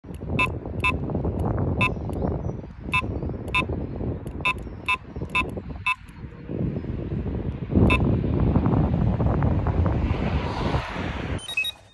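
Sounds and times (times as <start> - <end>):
bite alarm beeping: 0.4 - 1.0, 4.4 - 6.0, 11.4 - 11.9.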